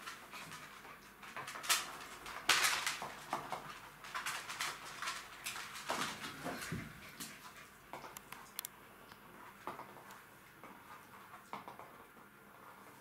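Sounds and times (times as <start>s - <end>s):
puppies scuffling: 0.0s - 8.2s
puppy claws clicking on floor: 0.0s - 8.7s.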